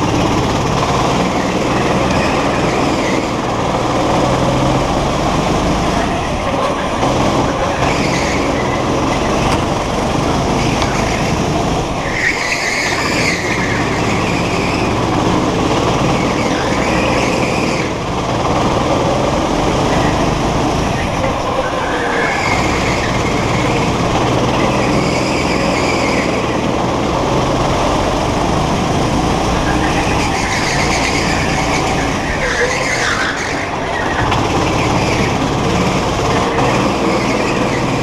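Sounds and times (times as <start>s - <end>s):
go-kart engine running hard: 0.0s - 38.0s
tyres squealing: 0.0s - 38.0s.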